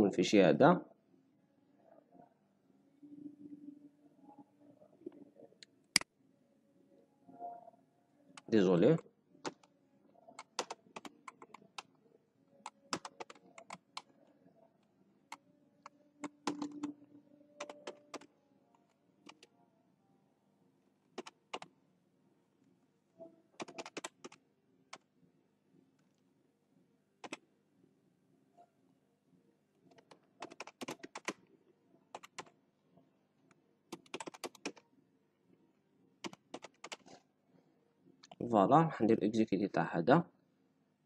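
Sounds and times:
computer keyboard typing: 0:10.3 - 0:11.9, 0:12.6 - 0:14.2, 0:15.3 - 0:17.0, 0:17.6 - 0:19.5, 0:21.2 - 0:21.7, 0:23.6 - 0:25.0, 0:29.9 - 0:31.4, 0:32.1 - 0:32.5, 0:33.9 - 0:34.8, 0:36.2 - 0:37.2.

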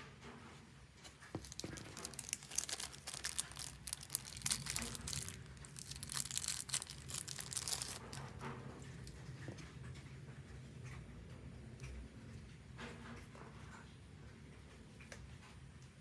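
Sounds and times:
plastic bag crinkling: 0:01.1 - 0:08.4.

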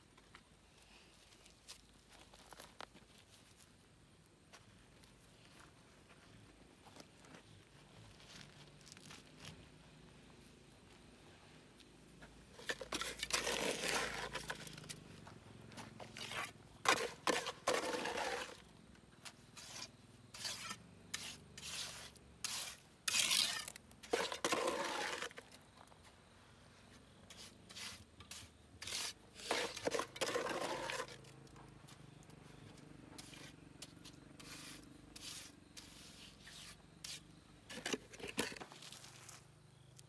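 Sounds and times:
long scraping strokes: 0:33.2 - 0:37.8.

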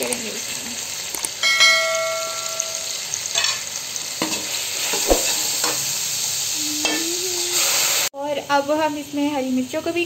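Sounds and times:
masala sizzling in oil: 0:00.0 - 0:10.0
knock ringing on metal pot: 0:01.4 - 0:02.9.

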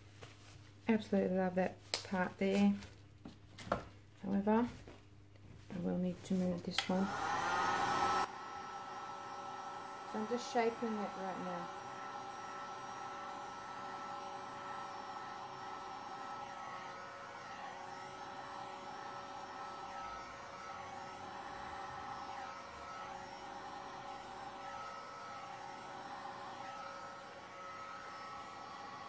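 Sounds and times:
heat gun fan blowing: 0:06.6 - 0:29.0.

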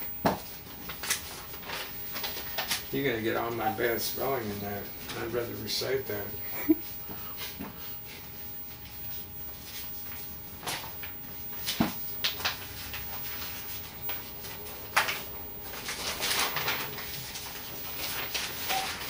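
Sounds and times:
paper rustling: 0:00.4 - 0:05.6, 0:09.6 - 0:19.0.

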